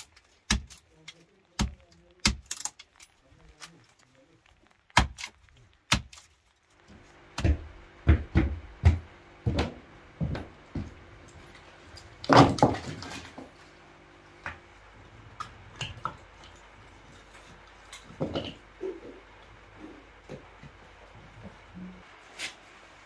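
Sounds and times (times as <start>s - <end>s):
hatchet chopping kindling: 0.0s - 0.8s, 1.5s - 2.8s, 4.9s - 6.3s
footsteps on wooden floor: 6.8s - 11.0s.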